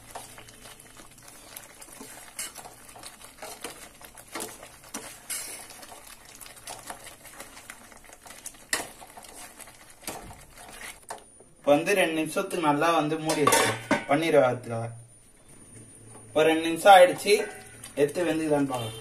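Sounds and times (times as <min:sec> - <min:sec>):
metal spoon scraping a pan: 0:01.8 - 0:05.9, 0:17.0 - 0:18.0.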